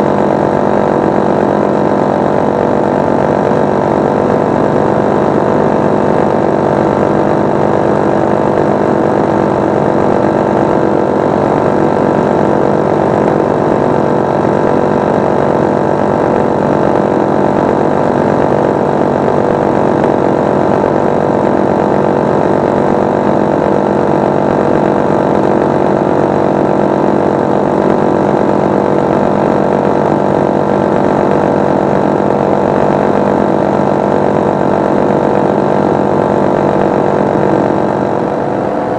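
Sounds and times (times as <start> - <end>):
paramotor engine drone: 0.0 - 38.9.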